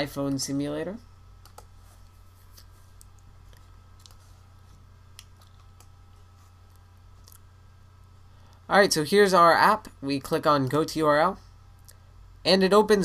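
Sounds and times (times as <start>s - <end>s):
low steady hum: 0.0s - 13.0s
computer mouse clicks: 1.4s - 1.7s, 2.5s - 4.3s, 5.1s - 6.0s.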